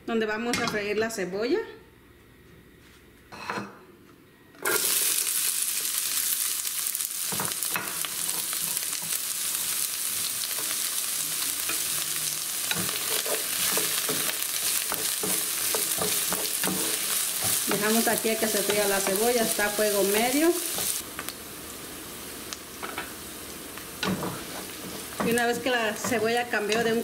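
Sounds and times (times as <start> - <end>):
onion sizzling in hot oil: 4.6 - 27.0
wooden spoon scraping: 11.7 - 21.0.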